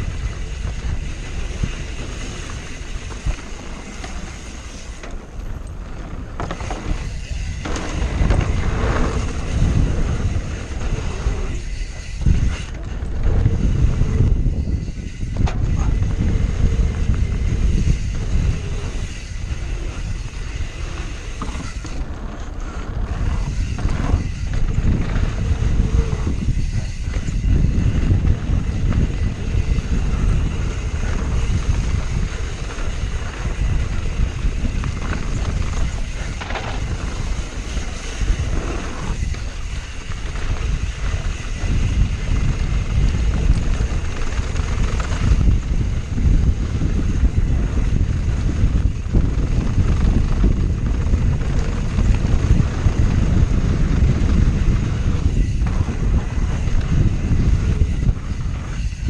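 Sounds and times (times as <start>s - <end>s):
bike tyres rumbling on dirt: 0.0s - 59.0s
wind buffeting microphone: 0.0s - 59.0s
bike knocking over bumps: 30.6s - 37.5s.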